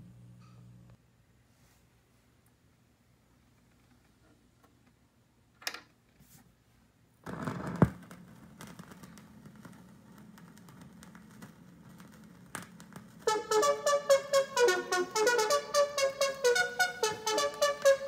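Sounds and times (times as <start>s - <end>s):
vinyl crackle and hiss: 7.2s - 18.0s.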